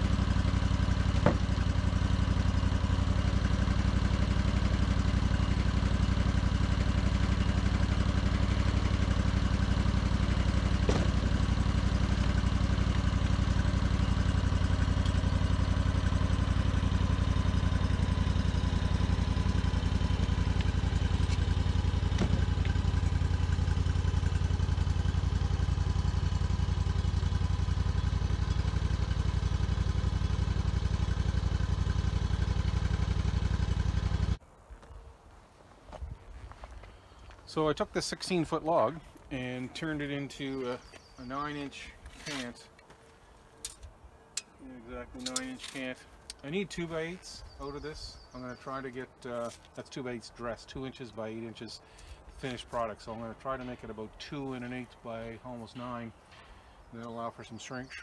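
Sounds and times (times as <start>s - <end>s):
sawmill engine running: 0.0s - 34.4s.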